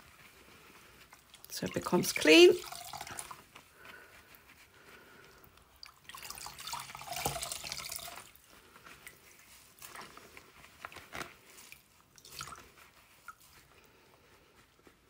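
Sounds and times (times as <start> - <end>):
water streaming into bowl: 1.4 - 3.4, 5.8 - 8.3
water dripping into bowl: 2.5 - 3.4, 5.8 - 8.1.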